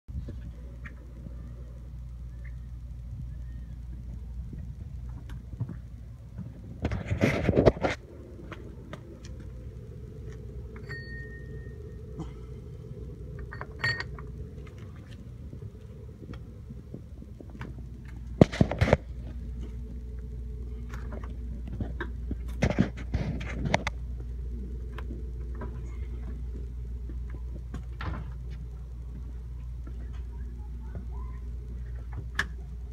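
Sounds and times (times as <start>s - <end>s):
steady low hum: 0.1s - 32.9s
clatter and rustling: 4.6s - 9.4s, 13.4s - 20.0s, 20.8s - 24.0s.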